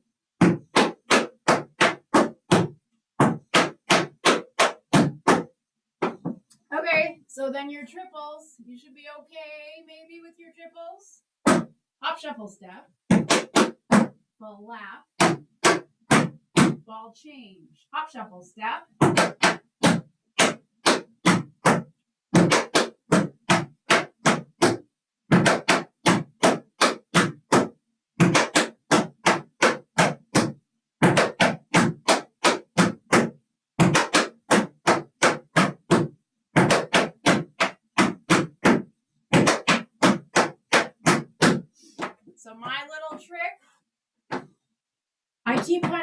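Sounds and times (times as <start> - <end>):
tap shoes on wooden board: 0.4 - 6.5, 11.4 - 11.7, 13.1 - 14.2, 15.2 - 16.8, 19.0 - 43.3, 44.3 - 44.5, 45.5 - 46.0.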